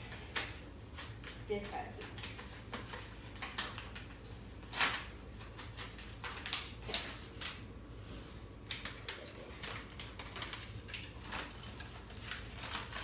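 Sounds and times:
packaging rustling and crinkling: 0.0s - 7.6s, 8.6s - 13.0s.

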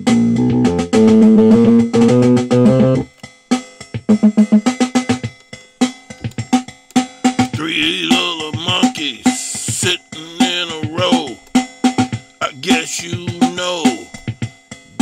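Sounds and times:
bass: 0.0s - 3.2s, 3.8s - 5.4s
plucked guitar: 0.0s - 3.3s
drums: 0.0s - 15.0s
instrumental rap beat: 0.0s - 15.0s.

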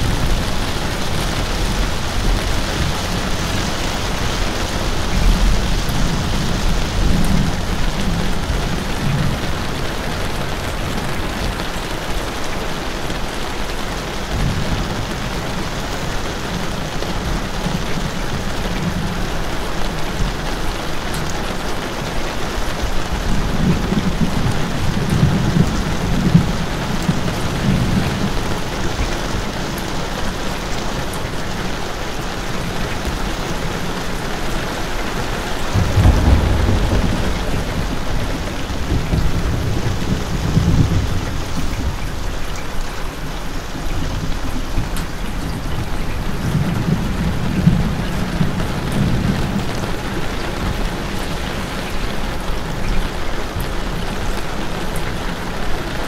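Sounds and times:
heavy rain falling: 0.0s - 56.0s
low rumble: 35.7s - 42.6s.

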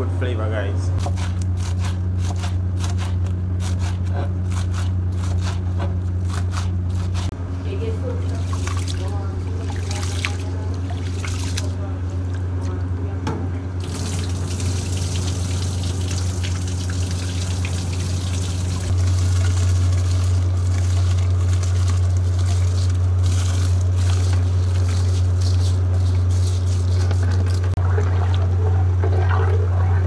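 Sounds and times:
steady low hum: 0.0s - 30.0s
water sloshing and trickling: 8.1s - 13.1s, 13.8s - 30.0s.

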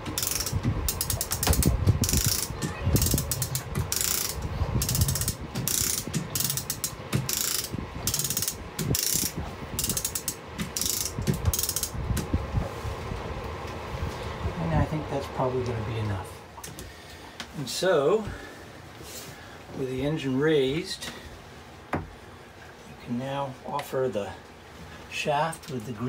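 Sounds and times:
chain hoist pawl clicking: 0.0s - 12.0s.

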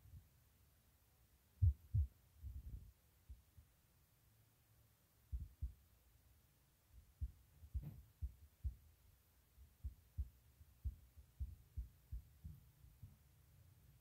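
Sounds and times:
faint deep thumps: 5.3s - 5.8s, 7.0s - 8.8s.

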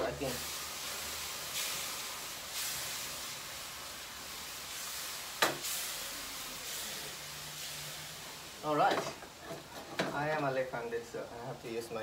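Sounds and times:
noodles sizzling in a wok: 0.0s - 12.0s.

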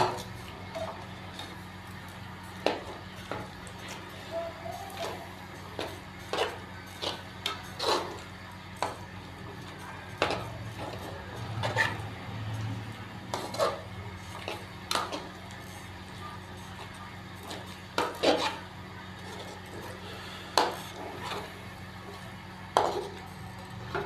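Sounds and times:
metal spatula scraping pan: 4.9s - 12.7s, 13.3s - 15.9s, 17.5s - 21.5s, 22.8s - 23.2s.

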